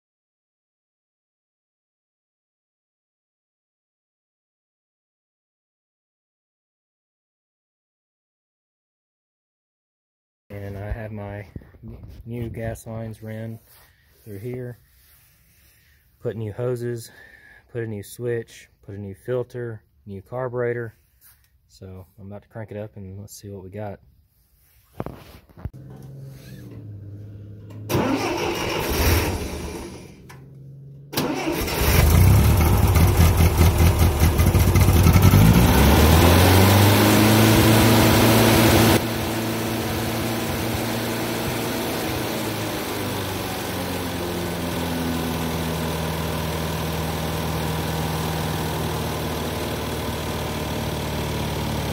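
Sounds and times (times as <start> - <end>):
tractor engine running: 25.7 - 51.9
tractor engine cranking: 25.8 - 36.4.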